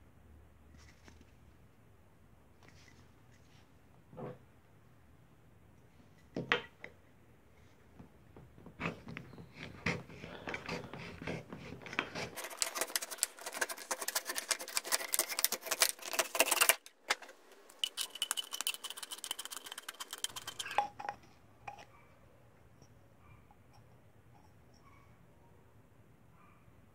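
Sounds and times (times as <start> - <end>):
knife cutting metal can: 10.6 - 21.1.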